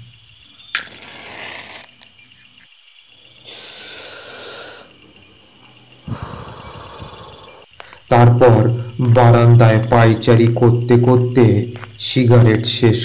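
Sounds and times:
flaring hiss: 0:00.7 - 0:02.2, 0:03.4 - 0:05.0, 0:06.0 - 0:07.8
match strike: 0:00.8 - 0:02.1
breathy exhale: 0:03.4 - 0:05.1, 0:06.0 - 0:08.1.

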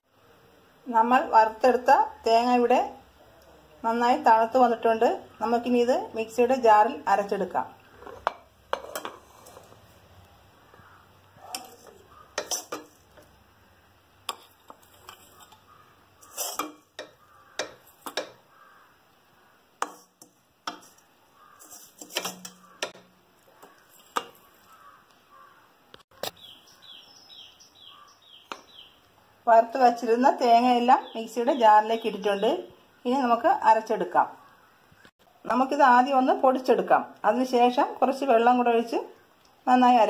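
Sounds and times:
spoon scraping metal pan: 0:07.8 - 0:10.0, 0:10.7 - 0:13.4, 0:14.3 - 0:18.4, 0:19.8 - 0:24.8
spoon knocking on steel jar: 0:16.6 - 0:18.4.

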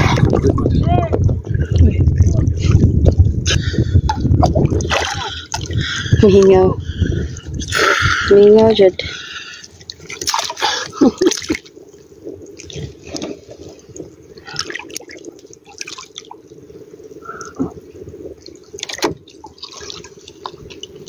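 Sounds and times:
water splashing and dripping: 0:04.1 - 0:08.0, 0:08.6 - 0:21.0.

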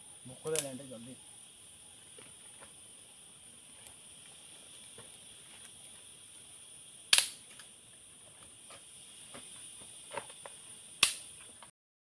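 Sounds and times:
high-pitched insect chorus: 0:00.0 - 0:11.7
sharp snap: 0:00.5 - 0:00.8, 0:07.1 - 0:07.7, 0:11.0 - 0:11.4.

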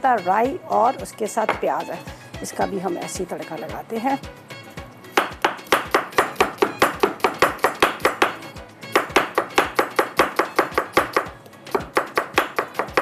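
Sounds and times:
knife chopping on wooden board: 0:05.1 - 0:13.0.

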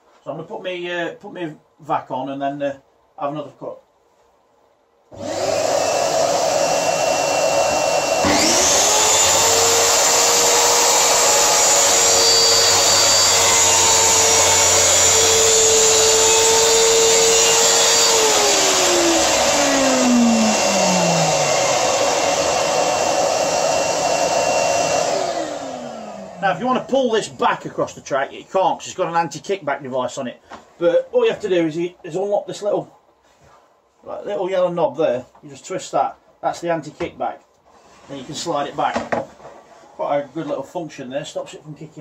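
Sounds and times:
plunge saw cutting plywood: 0:05.1 - 0:26.4
shop vacuum running: 0:05.1 - 0:27.0.

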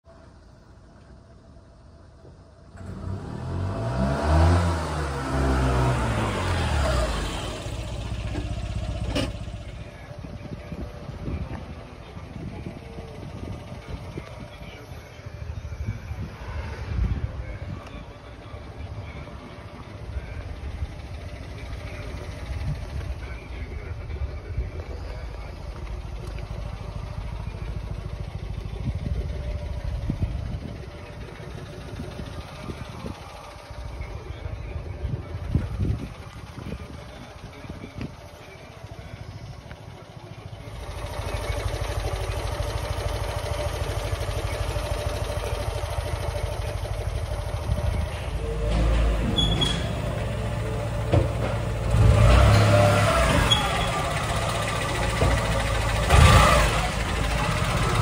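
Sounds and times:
small truck engine idling: 0:00.1 - 0:58.0
truck engine revving: 0:02.8 - 0:10.0, 0:40.6 - 0:58.0.

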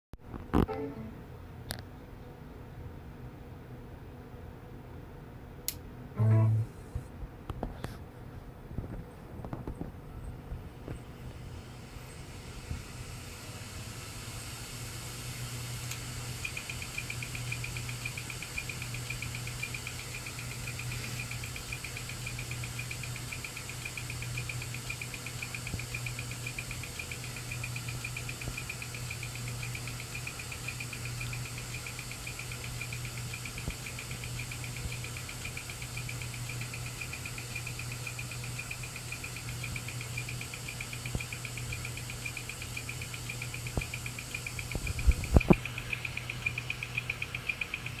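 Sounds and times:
hard drive humming: 0:11.0 - 0:48.0
high rapidly pulsing chirp: 0:45.4 - 0:48.0.

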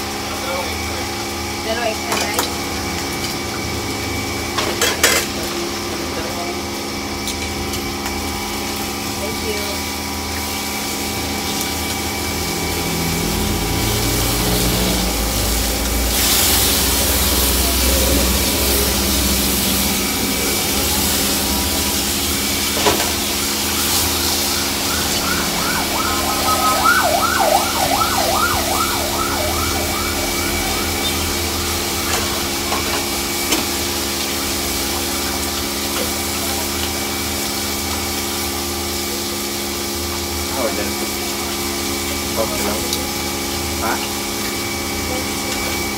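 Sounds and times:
machine hum with whining tones: 0:00.0 - 0:36.0
meat sizzling in oil: 0:00.0 - 0:45.9.

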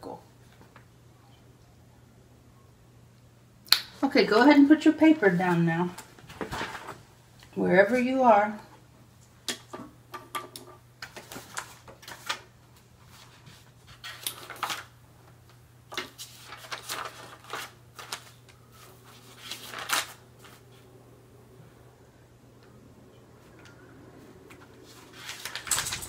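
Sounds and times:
faint low hum: 0:00.0 - 0:26.0
papers rustling: 0:05.5 - 0:07.1, 0:11.0 - 0:15.0, 0:15.9 - 0:20.9, 0:24.5 - 0:26.0.

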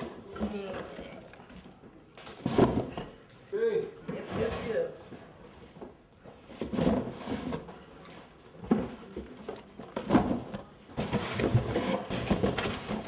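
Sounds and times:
cardboard boxes being handled: 0:04.1 - 0:13.0.

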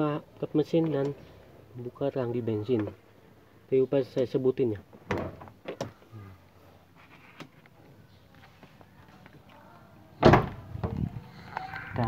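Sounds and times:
loud thud: 0:10.2 - 0:10.6.

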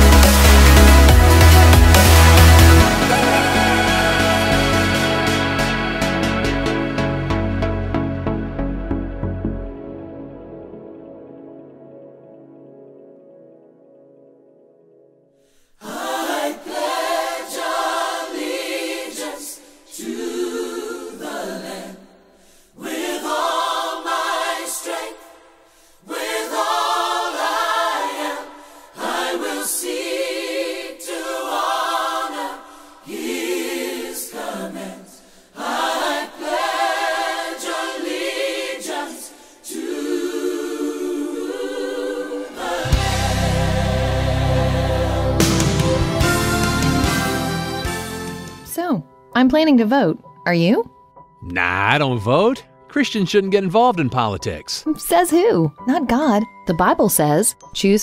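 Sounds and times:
choir singing a cappella: 0:00.0 - 0:09.4, 0:15.8 - 0:48.4
instrumental music with deep bass: 0:00.0 - 0:10.5.

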